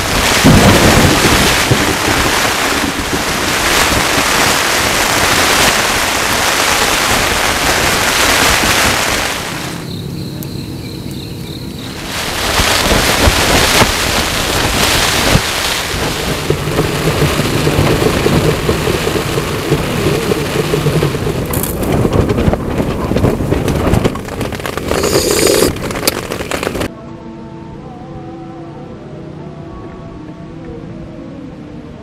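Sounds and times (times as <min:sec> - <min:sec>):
heavy rain pouring: 0:00.0 - 0:10.2, 0:11.6 - 0:26.9
thunder rumbling: 0:00.0 - 0:10.4, 0:11.5 - 0:26.9.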